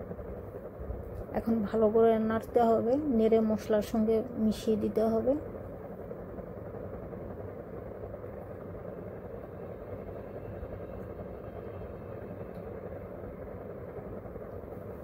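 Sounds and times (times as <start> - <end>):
steady low rushing noise: 0.0 - 3.2.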